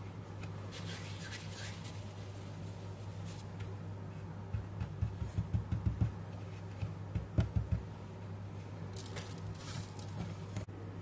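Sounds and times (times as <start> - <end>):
steady low hum: 0.0 - 11.0
dough balls knocking on plate: 4.5 - 6.2, 6.8 - 7.9.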